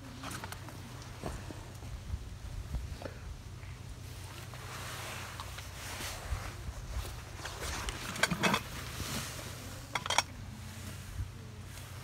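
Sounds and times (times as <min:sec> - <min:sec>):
dishes clinking: 0:09.9 - 0:10.3.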